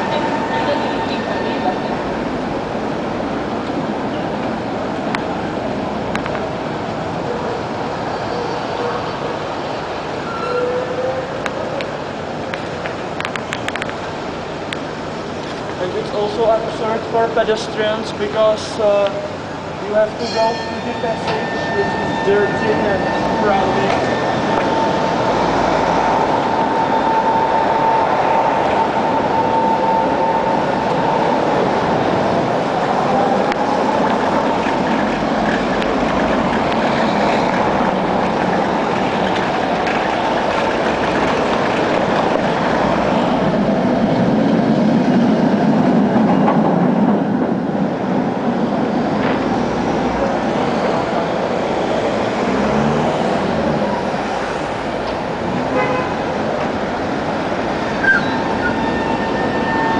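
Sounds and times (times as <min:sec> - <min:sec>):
steady high tone: 0:00.0 - 0:03.2, 0:19.8 - 0:34.5
tram rumbling on rails: 0:00.0 - 0:59.9.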